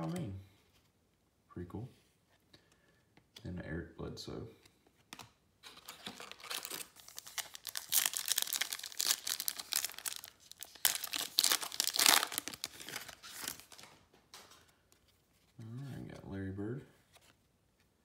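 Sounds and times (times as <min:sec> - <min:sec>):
wrapper tearing and crinkling: 0:05.7 - 0:13.9.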